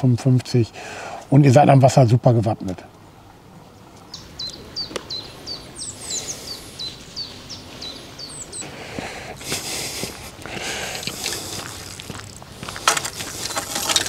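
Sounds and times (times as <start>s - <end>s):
small bird chirping: 4.0s - 8.7s.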